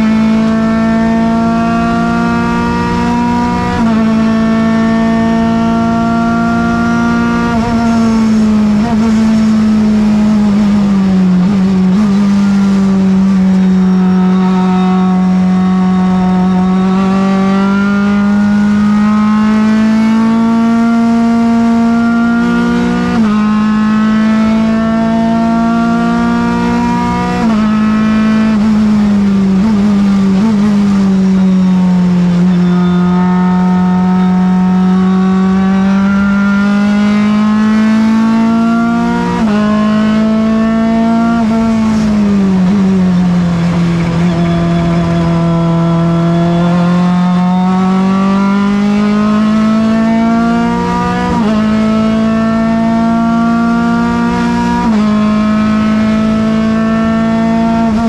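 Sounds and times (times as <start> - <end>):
gear changes: 0.0 - 58.0
race car engine at high revs: 0.0 - 58.0.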